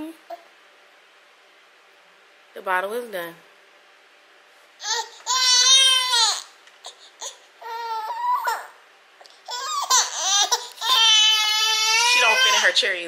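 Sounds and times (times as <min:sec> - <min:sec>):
infant crying: 0:04.8 - 0:08.8, 0:09.4 - 0:12.8.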